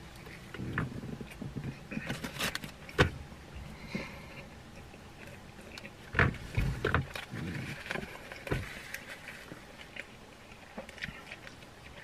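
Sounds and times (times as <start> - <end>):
person chewing: 0.0 - 3.0, 3.8 - 12.0.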